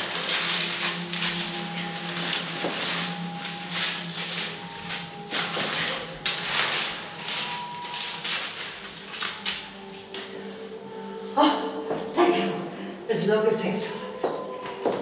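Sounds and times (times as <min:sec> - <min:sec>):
paper crinkling: 0:00.0 - 0:10.8.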